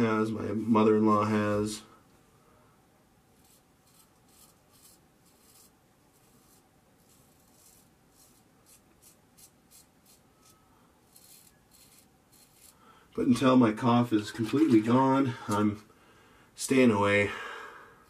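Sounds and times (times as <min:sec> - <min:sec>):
razor scraping stubble: 0:03.4 - 0:12.8.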